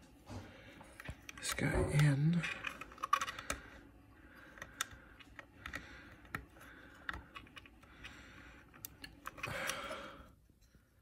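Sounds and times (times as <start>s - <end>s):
small plastic clicks and rubbing: 1.0s - 3.7s.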